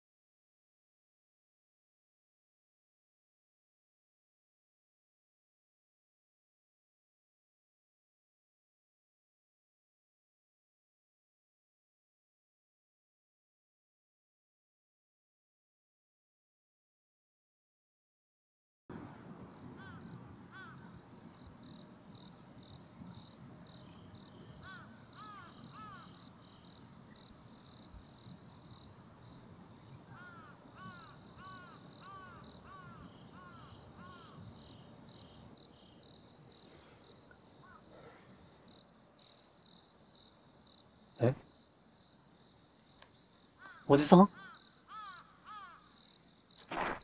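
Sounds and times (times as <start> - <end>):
insect chirping: 19.0 - 47.0
bird calling: 19.6 - 39.5, 42.8 - 47.0.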